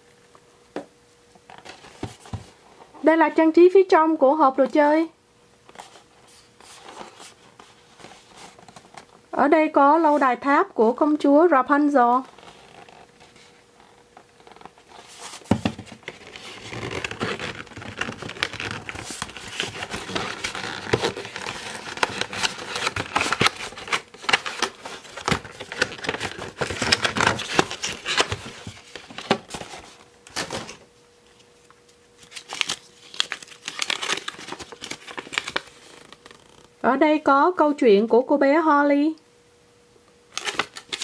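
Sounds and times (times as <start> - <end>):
cardboard and paper rustling: 1.5 - 2.6, 5.7 - 9.1, 12.2 - 31.5, 32.2 - 36.7, 40.4 - 41.0
paper leaflet unfolding: 32.2 - 36.7.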